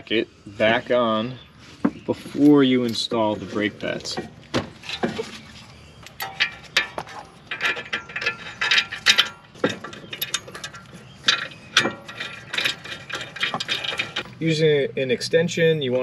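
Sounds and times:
metal clinks: 6.2s - 14.4s.

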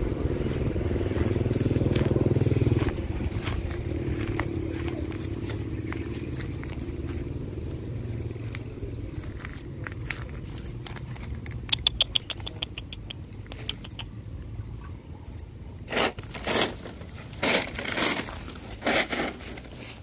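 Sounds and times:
dog scraping and rustling ground: 15.8s - 20.0s.

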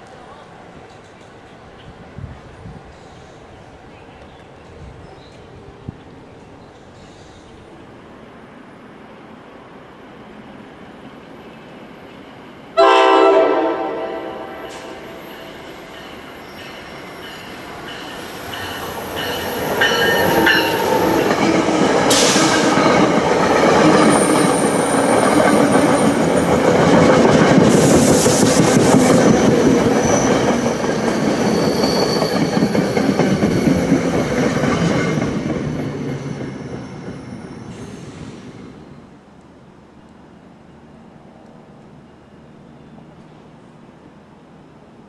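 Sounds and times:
high-pitched wheel squealing: 14.0s - 27.2s, 28.1s - 38.2s
train wheels rumbling and clattering: 16.8s - 39.0s.

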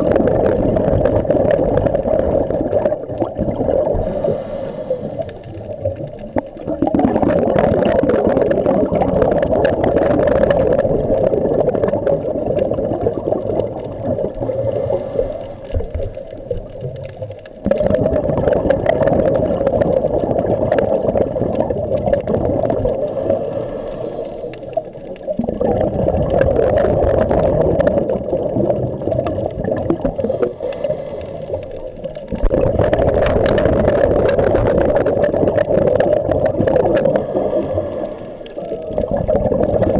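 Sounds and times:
exhaled bubbles gurgling underwater: 0.0s - 39.9s
regulator hiss on inhale: 3.8s - 6.6s, 13.6s - 17.5s, 22.8s - 25.4s, 30.0s - 32.4s, 36.9s - 39.0s.

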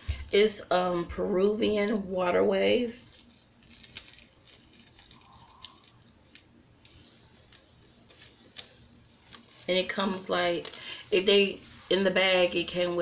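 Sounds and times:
packaging clicks and rustles: 3.1s - 9.4s.

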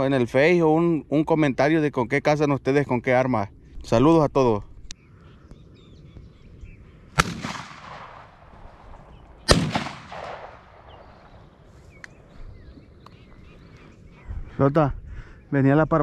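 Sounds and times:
shotgun shots with echo: 7.2s - 11.4s.

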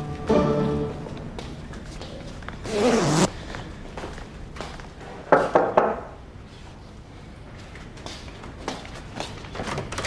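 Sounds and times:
zipper pulled: 2.6s - 3.3s.

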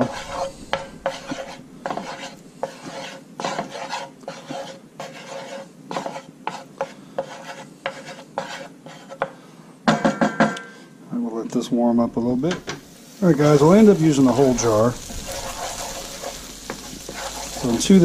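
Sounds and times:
metal spoon scraping frying pan: 0.0s - 9.2s, 13.6s - 18.0s.

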